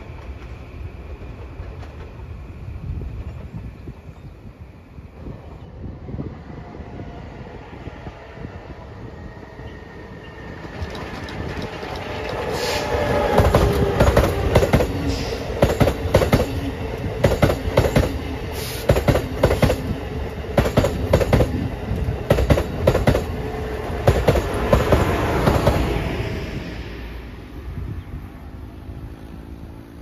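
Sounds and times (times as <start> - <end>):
train rumbling past: 0.0 - 30.0
wheels clacking over rail joints: 10.2 - 25.9.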